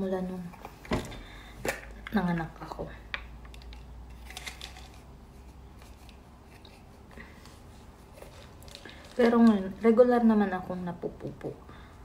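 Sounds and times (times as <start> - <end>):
plastic bottle clicks and rustles: 8.1 - 9.8.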